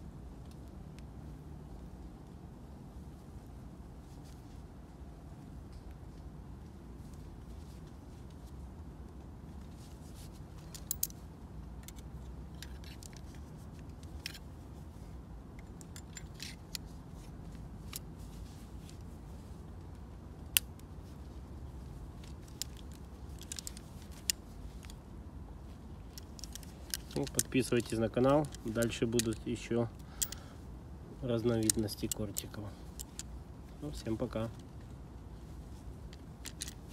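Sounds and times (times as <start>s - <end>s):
light metallic clicks and ticks: 10.6s - 14.5s, 15.5s - 18.1s, 22.2s - 25.1s, 26.0s - 30.6s, 31.2s - 35.0s, 36.0s - 36.9s.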